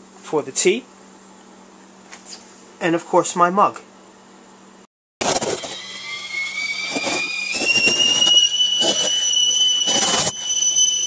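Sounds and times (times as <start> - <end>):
kettle whistling: 5.2 - 11.0.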